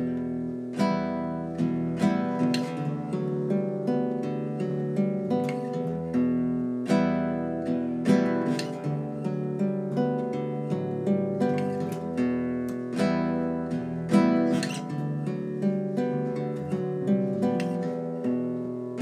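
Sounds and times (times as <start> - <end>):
acoustic guitar chords: 0.0 - 19.0.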